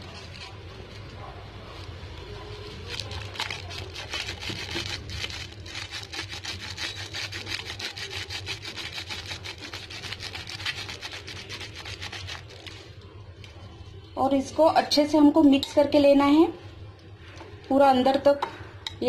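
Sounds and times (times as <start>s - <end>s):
spice powder rattling in packet: 2.7s - 12.9s.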